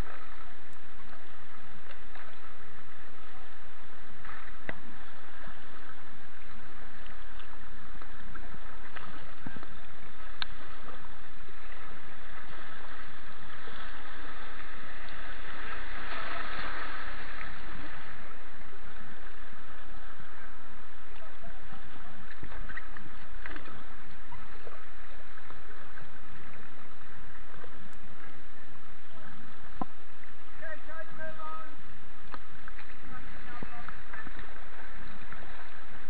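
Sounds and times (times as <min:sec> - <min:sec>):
river water rushing: 0:00.0 - 0:28.6
water splashing: 0:00.0 - 0:36.0.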